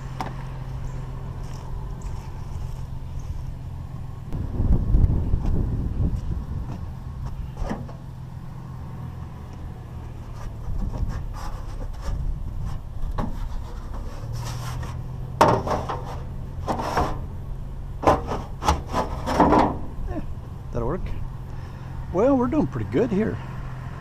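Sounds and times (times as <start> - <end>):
pickup truck idling: 0.0 - 24.0
metal scraping and clattering: 10.2 - 17.3, 18.0 - 20.0.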